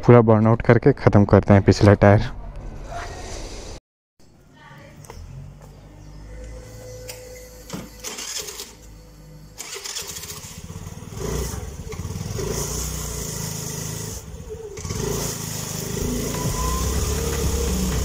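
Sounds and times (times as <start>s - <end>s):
scooter engine kick-started and revving: 6.0s - 18.0s.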